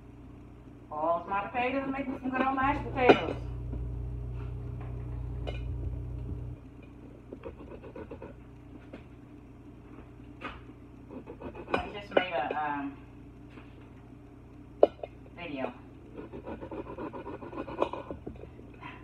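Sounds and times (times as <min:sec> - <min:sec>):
low hum: 0:00.0 - 0:19.0
woman's voice: 0:00.9 - 0:03.5, 0:11.8 - 0:13.0.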